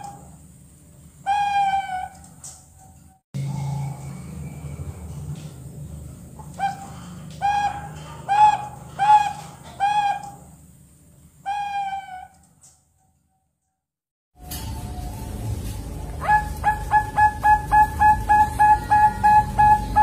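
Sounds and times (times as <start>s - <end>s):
young doves cooing: 16.2s - 20.0s.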